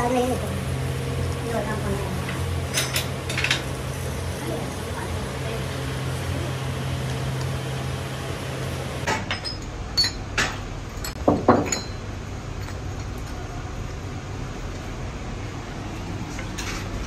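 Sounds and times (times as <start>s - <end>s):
furnace fire humming: 0.0s - 17.0s
metal pistons clinking together: 9.1s - 10.3s, 11.0s - 12.0s.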